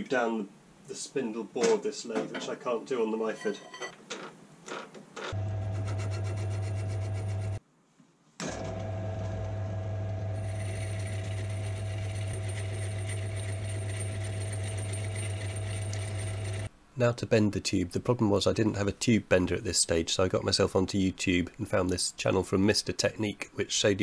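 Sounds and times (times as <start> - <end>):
lathe motor humming: 5.3 - 7.6, 8.6 - 16.7.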